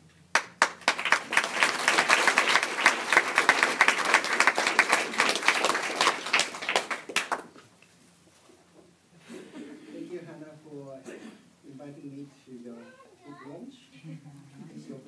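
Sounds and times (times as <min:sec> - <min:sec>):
audience applauding: 0:00.3 - 0:07.6.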